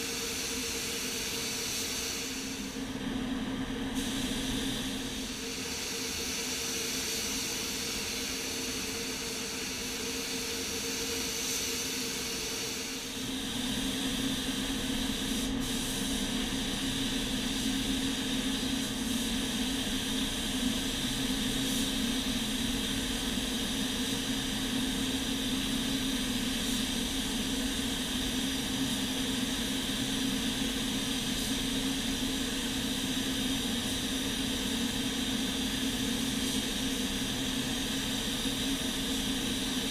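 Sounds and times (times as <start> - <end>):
ventilation hum: 12.8 - 39.9
paint spray gun hissing: 13.0 - 23.0, 23.6 - 39.9.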